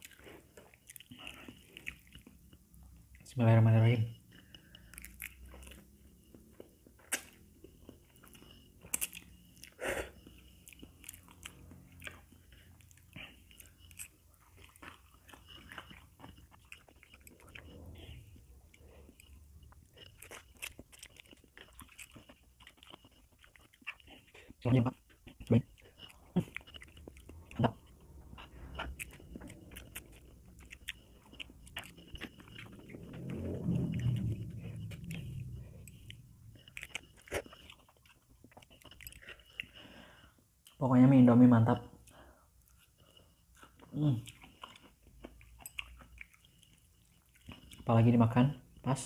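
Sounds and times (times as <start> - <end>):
soft chewing with wet clicks: 0.0 - 49.0.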